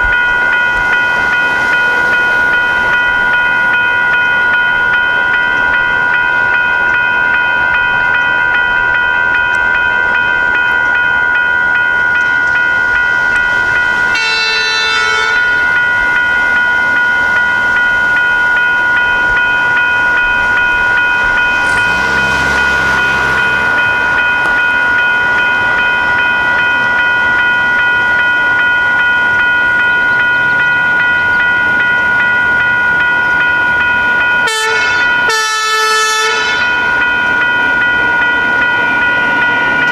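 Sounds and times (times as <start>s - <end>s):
crossing warning bell ringing: 0.0s - 39.9s
train horn blast: 14.1s - 15.6s, 21.4s - 24.0s, 34.4s - 36.8s.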